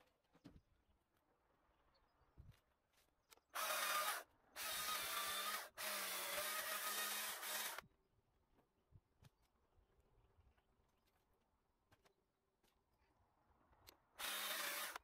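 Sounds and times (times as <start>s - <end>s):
battery chainsaw bursts: 14.2s - 15.0s.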